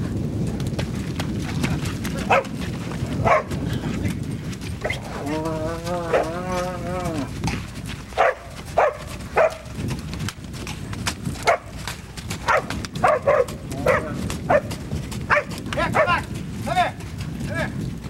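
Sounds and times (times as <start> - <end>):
dog barking: 2.3 - 2.5, 3.2 - 3.6, 6.1 - 6.3, 8.2 - 9.7, 11.4 - 11.7, 12.4 - 14.7, 15.3 - 16.2.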